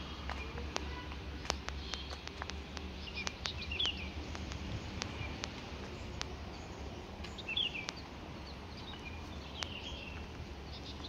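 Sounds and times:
birds chirping: 0.0s - 11.0s
sharp ticks: 0.3s - 6.4s, 7.2s - 8.1s, 9.5s - 10.0s.

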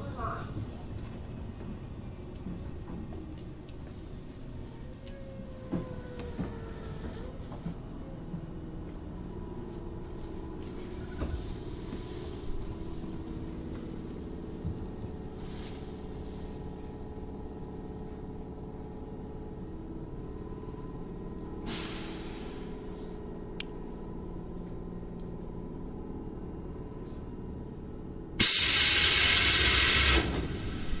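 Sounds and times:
electric train hum: 0.0s - 31.0s
compressed air blast: 28.4s - 31.0s.

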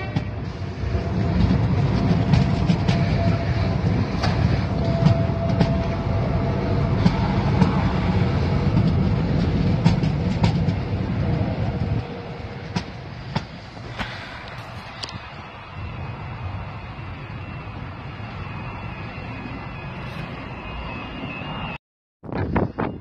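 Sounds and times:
train rumbling past: 0.0s - 23.0s
wheels clicking over rails: 1.0s - 15.5s.

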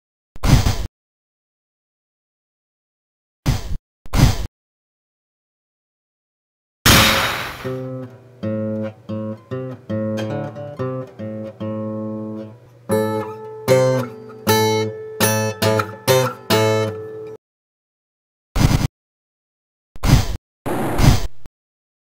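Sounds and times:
sharp crash: 6.9s - 8.0s
guitar plucked and strummed: 7.6s - 17.4s.

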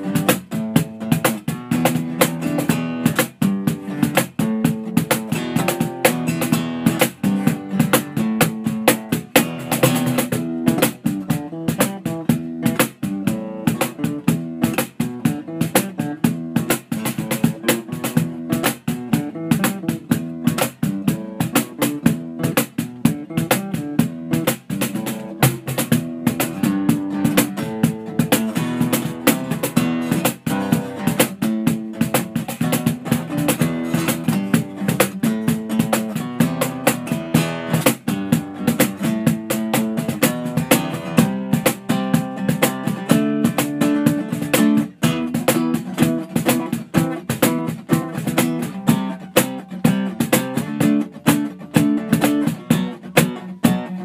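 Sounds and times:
fast plucked guitar: 0.0s - 54.0s.

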